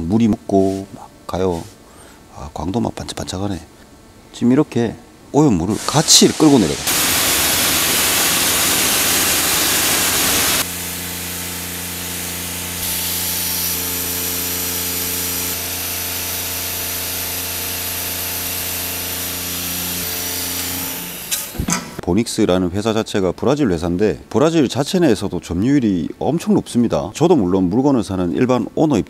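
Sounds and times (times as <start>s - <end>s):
water spray hissing on wheel: 5.8s - 10.7s.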